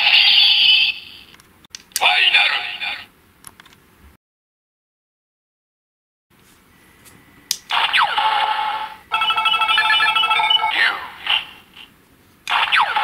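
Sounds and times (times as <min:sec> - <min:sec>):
toy electronic sound effect: 0:00.0 - 0:01.2, 0:07.7 - 0:11.6, 0:12.5 - 0:13.0.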